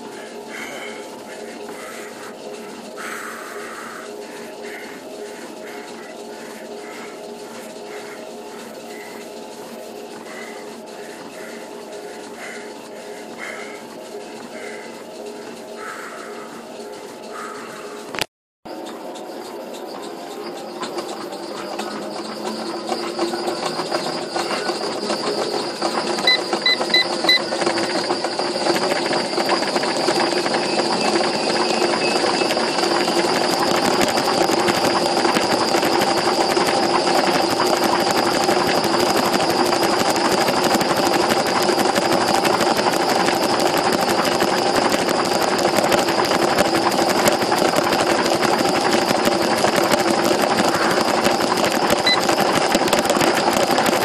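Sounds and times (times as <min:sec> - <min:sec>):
treadmill motor whirring: 0:00.0 - 0:54.0
quick electronic beeps: 0:24.2 - 0:54.0.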